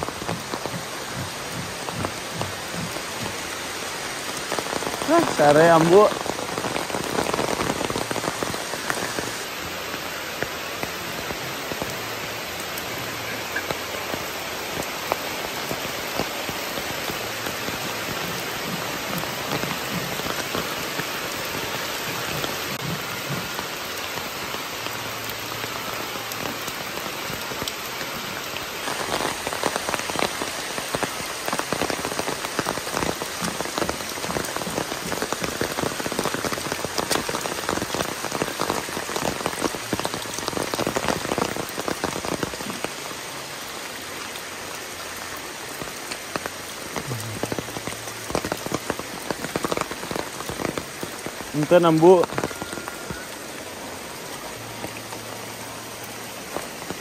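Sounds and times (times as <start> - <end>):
heavy rain on foliage: 0.0 - 57.0.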